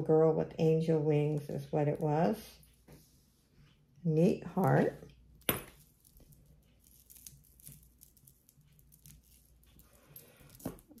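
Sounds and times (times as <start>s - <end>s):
metal jewelry rustling and ticking: 4.6s - 11.0s.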